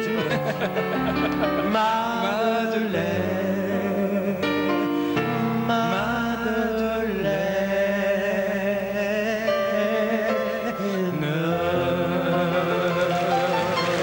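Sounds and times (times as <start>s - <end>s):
instrumental accompaniment: 0.0s - 14.0s.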